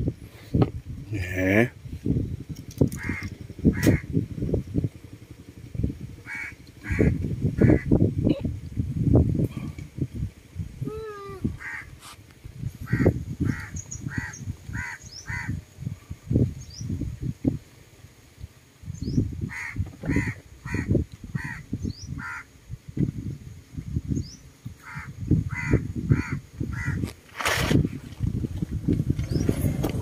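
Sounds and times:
wind buffeting microphone: 0.0s - 30.0s
crow cawing: 3.0s - 4.1s, 6.2s - 7.9s, 11.6s - 11.9s, 12.8s - 15.6s, 19.5s - 21.6s, 22.2s - 22.5s, 24.8s - 27.0s
high bird chirps: 13.5s - 15.5s.

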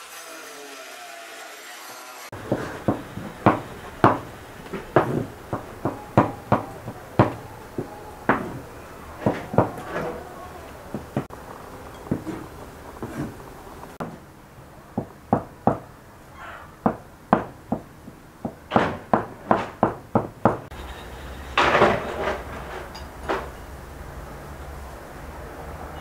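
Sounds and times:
knife chopping on wooden board: 2.4s - 8.6s.

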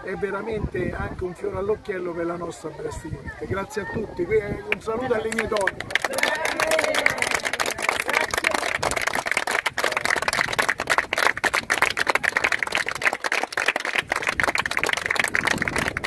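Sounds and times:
small group clapping: 4.7s - 16.0s.

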